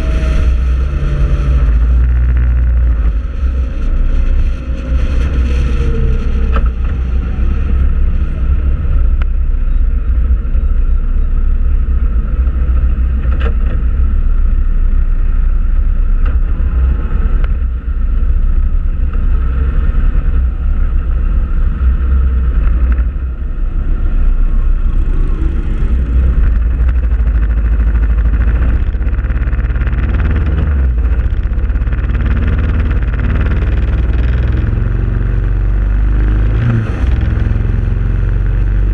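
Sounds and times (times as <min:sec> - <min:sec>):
motorcycle engine drone: 0:00.0 - 0:38.9
wind buffeting on microphone: 0:11.6 - 0:38.9.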